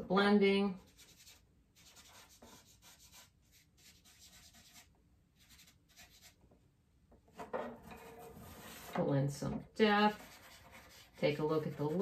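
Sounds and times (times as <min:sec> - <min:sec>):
charcoal rubbing on paper: 0:00.8 - 0:06.4, 0:10.0 - 0:12.0.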